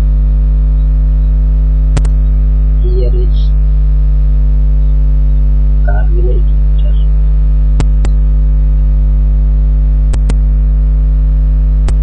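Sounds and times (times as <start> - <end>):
electrical mains hum: 0.0 - 10.8
computer mouse clicking: 10.2 - 10.4.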